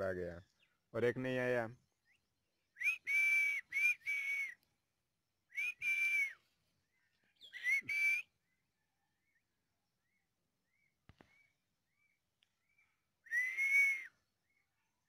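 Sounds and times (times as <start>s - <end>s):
person whistling: 2.8s - 4.6s, 5.5s - 6.4s, 7.5s - 8.3s, 13.3s - 14.2s.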